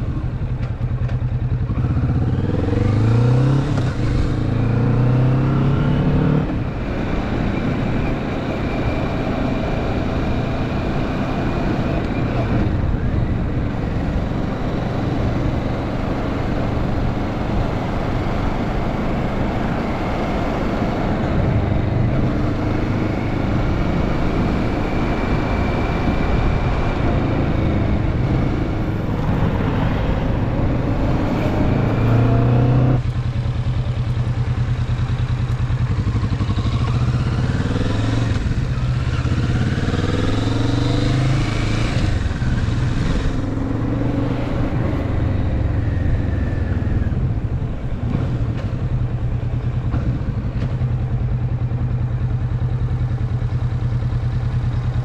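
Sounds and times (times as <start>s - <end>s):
motorcycle engine accelerating: 0.0s - 55.0s
rush of wind noise: 6.0s - 33.0s.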